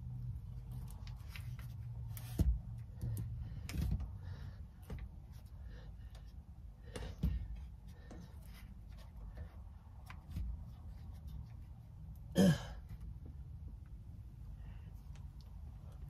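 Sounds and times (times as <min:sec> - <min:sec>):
small knocks and clicks of handling: 0:00.6 - 0:11.7.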